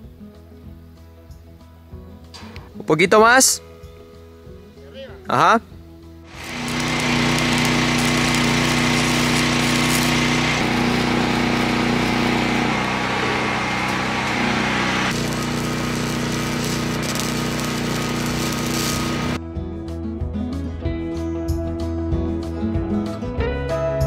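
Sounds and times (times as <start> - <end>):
power tool running: 6.3 - 19.4.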